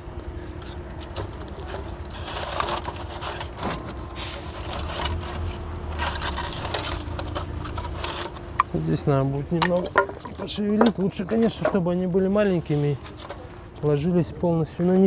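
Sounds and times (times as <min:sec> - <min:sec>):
low steady hum: 0:00.0 - 0:15.0
scraping and rustling: 0:00.4 - 0:14.0
wood pieces clattering: 0:00.6 - 0:08.9, 0:09.5 - 0:12.2.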